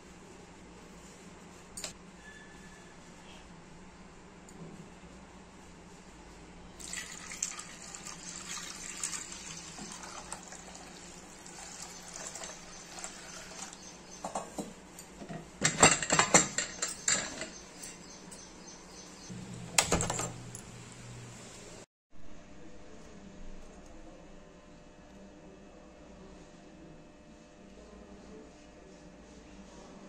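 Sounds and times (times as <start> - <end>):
water pouring into a pan: 6.8 - 13.8
metal pot clanking: 14.2 - 17.7.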